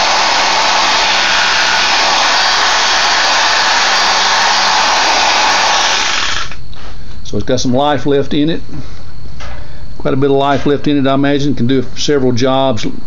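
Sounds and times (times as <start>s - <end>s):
orbital sander whirring: 0.0s - 6.7s.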